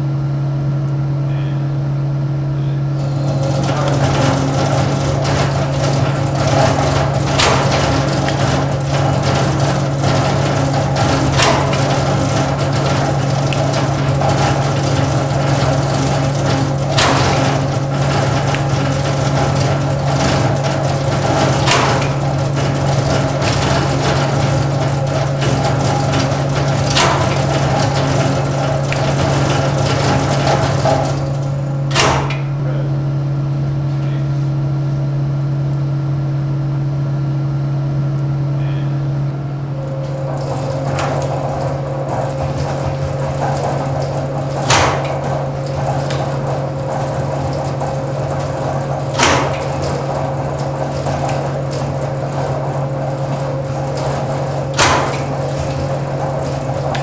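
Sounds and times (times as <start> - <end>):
low machinery hum: 0.0 - 57.0
sharp clacks: 3.0 - 32.4.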